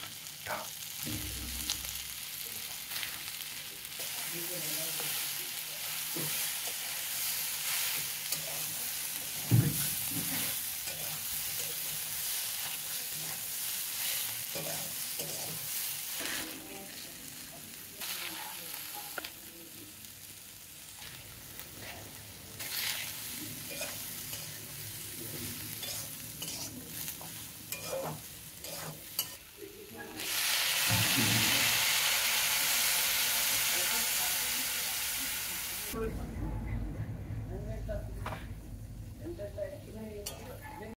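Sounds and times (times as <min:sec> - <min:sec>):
food sizzling in oil: 0:00.0 - 0:36.0, 0:39.9 - 0:40.9
water hissing in hot pan: 0:00.0 - 0:36.0
metal spatula scraping pan: 0:22.6 - 0:29.4.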